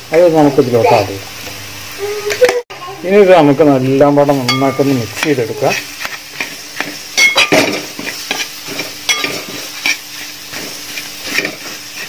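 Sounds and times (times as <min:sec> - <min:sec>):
hot oil sizzling: 0:00.0 - 0:12.0
metal spoon scraping a pan: 0:04.4 - 0:12.0.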